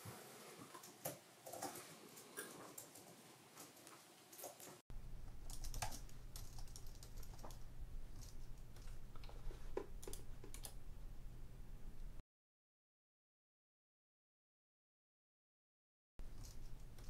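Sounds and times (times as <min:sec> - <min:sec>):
steady low hum: 0:04.9 - 0:12.2
typing on computer keyboard: 0:05.4 - 0:07.6, 0:08.2 - 0:10.8.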